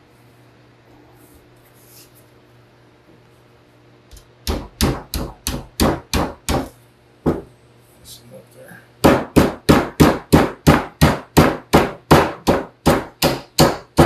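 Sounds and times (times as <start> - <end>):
hammer pounding sheet metal: 9.0 - 14.0.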